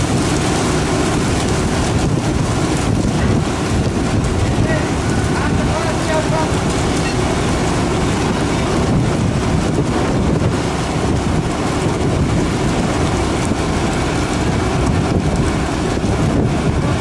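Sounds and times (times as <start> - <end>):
boat engine rumble: 0.0 - 17.0
wind buffeting microphone: 0.0 - 17.0.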